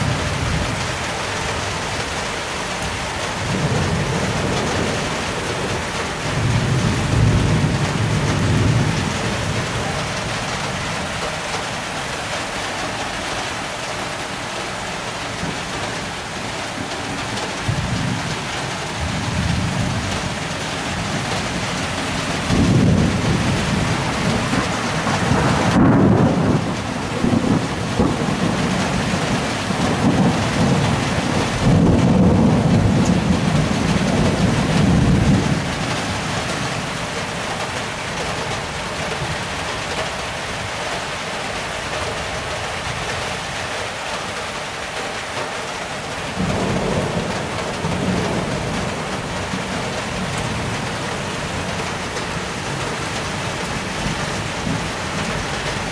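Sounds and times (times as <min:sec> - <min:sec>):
heavy rain falling: 0:00.0 - 0:55.9
rolling thunder: 0:03.4 - 0:11.0, 0:17.2 - 0:36.6.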